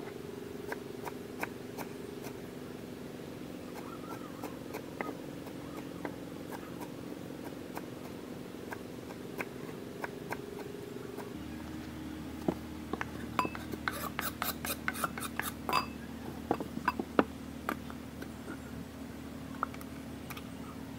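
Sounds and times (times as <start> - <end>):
steady low hum: 0.0 - 20.9
knife chopping herbs on wooden board: 12.9 - 15.6.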